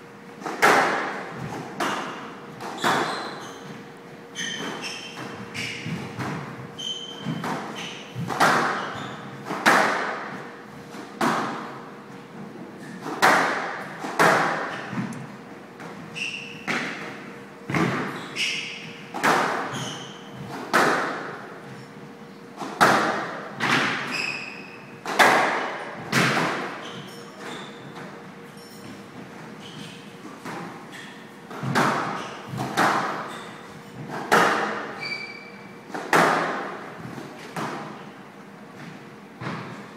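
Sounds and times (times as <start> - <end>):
court shoes squeaking: 0.4 - 10.4, 14.5 - 15.2, 15.8 - 22.6, 23.6 - 25.2, 25.8 - 36.3
squash ball hitting rackets and walls: 0.4 - 11.9, 12.8 - 21.8, 22.6 - 39.8.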